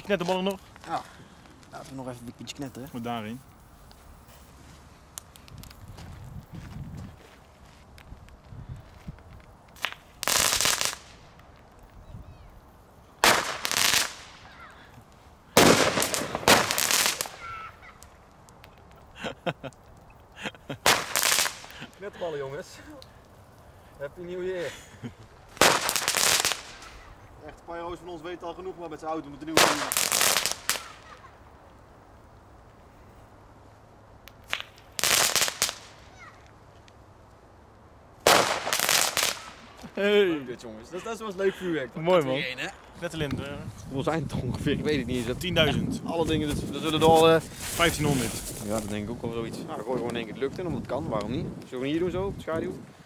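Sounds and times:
crackling firework balls: 0:00.0 - 0:40.5, 0:42.7 - 0:51.7
sharp firework pops: 0:09.4 - 0:11.9, 0:13.2 - 0:20.0, 0:20.8 - 0:22.0, 0:25.5 - 0:27.1, 0:29.5 - 0:31.3, 0:34.2 - 0:37.0, 0:38.2 - 0:40.0.

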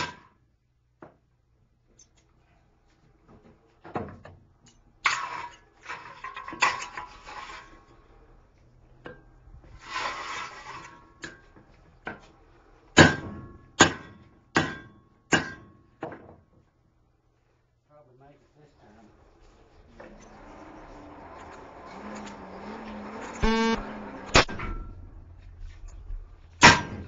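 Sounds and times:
rough scraping noise: 0:06.9 - 0:08.1, 0:09.8 - 0:11.2
hammer striking steel on anvil: 0:13.0 - 0:15.8, 0:26.6 - 0:27.0.

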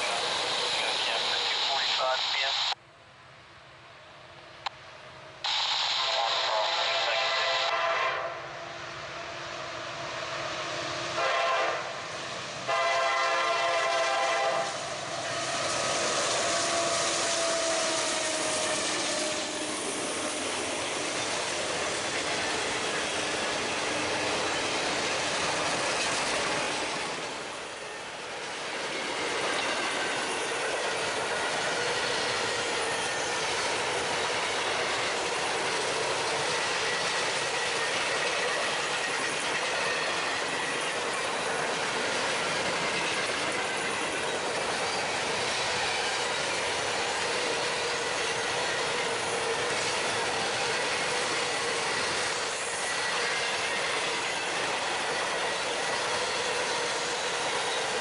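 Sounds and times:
train rolling past on rails: 0:00.0 - 0:58.0
train horn blasts: 0:07.2 - 0:08.4, 0:11.2 - 0:12.0, 0:12.7 - 0:14.8.

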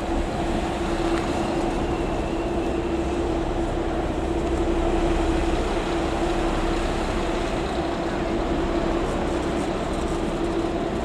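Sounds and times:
rail machine engine drone: 0:00.0 - 0:11.0.

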